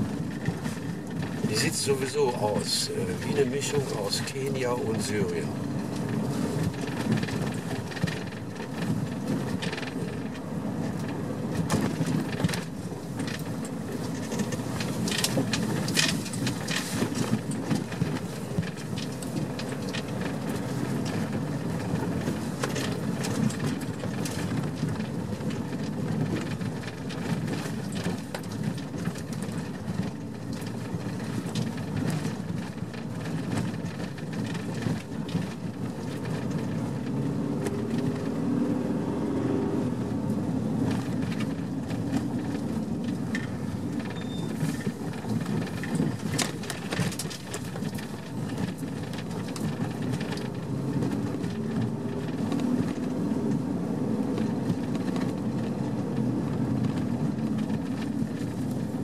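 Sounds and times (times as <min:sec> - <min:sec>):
vehicle engine and road noise: 0:00.0 - 0:59.0.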